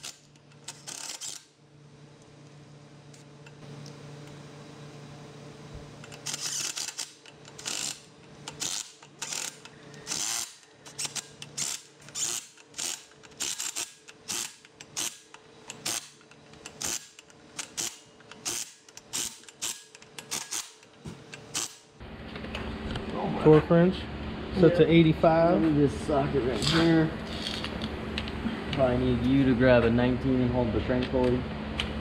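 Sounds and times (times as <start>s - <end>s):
hand ratchet clicking: 0.0s - 1.5s, 6.0s - 21.9s.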